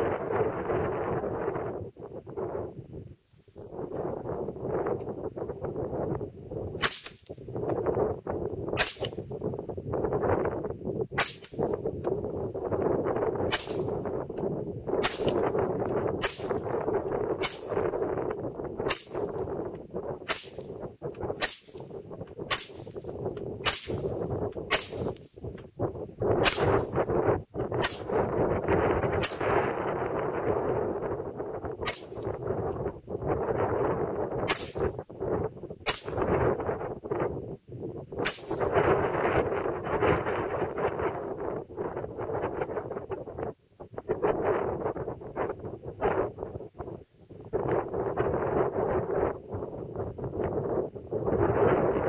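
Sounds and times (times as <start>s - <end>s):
gusty wind buffeting microphone: 0.0s - 52.0s
rifle single shots: 6.8s - 7.3s, 8.8s - 9.2s, 11.2s - 11.6s, 13.5s - 14.0s, 15.0s - 15.5s, 20.3s - 20.6s, 21.4s - 21.8s, 22.5s - 22.8s, 23.6s - 24.1s, 24.7s - 25.2s, 26.4s - 26.8s.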